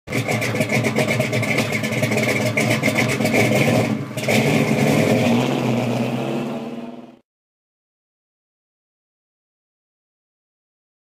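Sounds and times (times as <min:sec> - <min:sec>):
car engine pulsing: 0:00.1 - 0:07.2.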